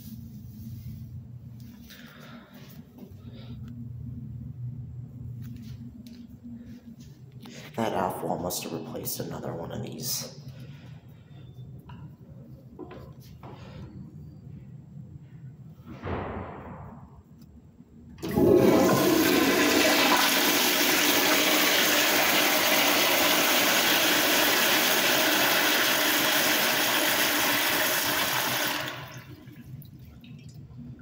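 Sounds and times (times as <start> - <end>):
toilet flushing: 18.2 - 30.7.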